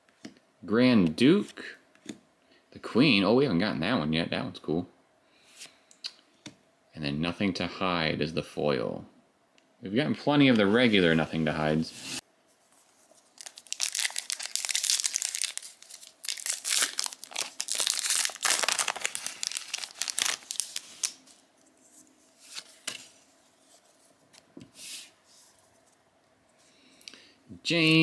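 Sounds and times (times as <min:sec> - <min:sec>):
wrapper tearing and crinkling: 0:13.2 - 0:21.4.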